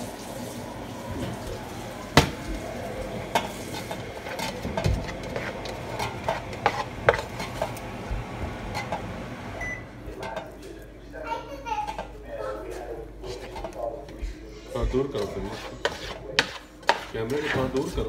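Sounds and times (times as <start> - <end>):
spoon stirring rice in pot: 3.2 - 9.1, 13.2 - 18.0.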